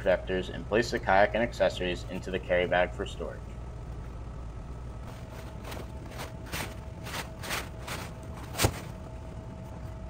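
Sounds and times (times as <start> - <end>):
fabric rustling and swishing: 5.0 - 8.9.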